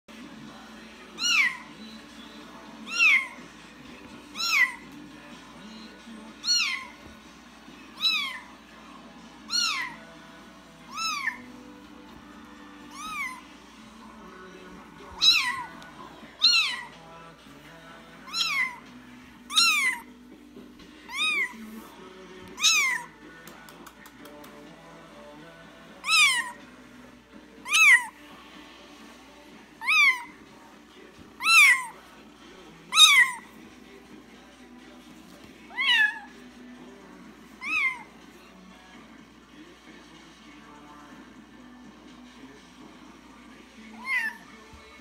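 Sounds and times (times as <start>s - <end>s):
kitten meowing: 1.2s - 1.6s, 2.9s - 3.4s, 4.3s - 4.8s, 6.4s - 7.0s, 8.0s - 8.5s, 9.5s - 10.0s, 10.9s - 11.5s, 12.9s - 13.4s, 15.2s - 15.8s, 16.4s - 16.9s, 18.3s - 18.8s, 19.5s - 20.1s, 21.1s - 21.6s, 22.6s - 23.1s, 26.0s - 26.6s, 27.6s - 28.1s, 29.8s - 30.3s, 31.4s - 32.0s, 32.9s - 33.4s, 35.7s - 36.3s, 37.6s - 38.1s, 44.0s - 44.4s.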